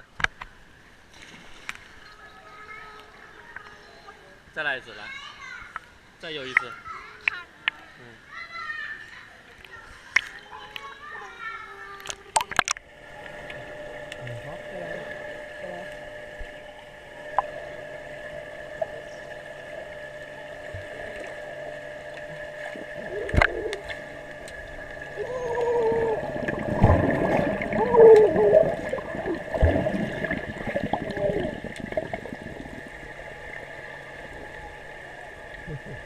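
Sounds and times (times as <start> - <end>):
steady underwater hum: 0.0 - 36.0
underwater bubbling and gurgling: 12.0 - 36.0.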